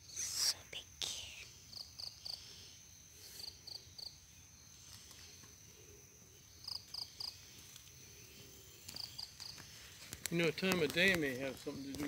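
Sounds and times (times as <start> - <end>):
high-pitched insect drone: 0.0 - 5.4.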